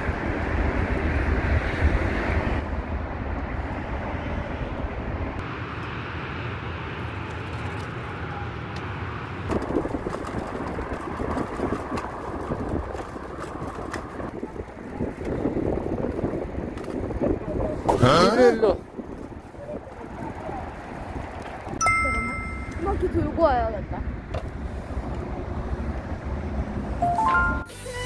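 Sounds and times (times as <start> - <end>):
wind rumbling over microphone: 0.0 - 5.4, 9.1 - 21.8
bicycle clicks and rattles: 7.0 - 8.2, 9.4 - 17.4, 19.0 - 23.0.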